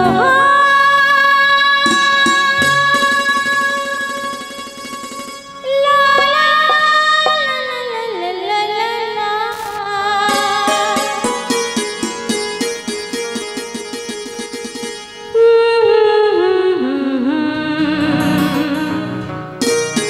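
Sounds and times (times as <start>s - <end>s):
woman singing into microphone: 0.0s - 4.5s, 5.6s - 11.4s, 15.4s - 19.4s
drum strokes: 1.8s - 5.5s, 10.3s - 13.6s.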